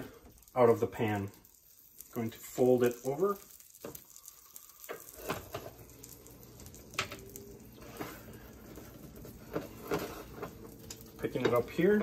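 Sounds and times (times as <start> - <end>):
low steady hum: 4.1 - 12.0.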